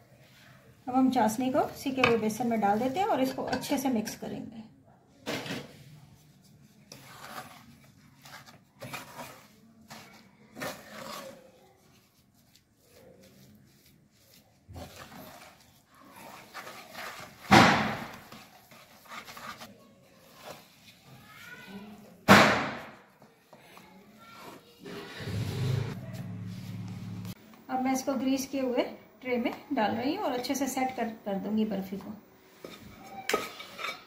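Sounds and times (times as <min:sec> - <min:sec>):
spatula scraping a pan: 0:05.4 - 0:21.6, 0:23.5 - 0:26.9, 0:32.5 - 0:34.0.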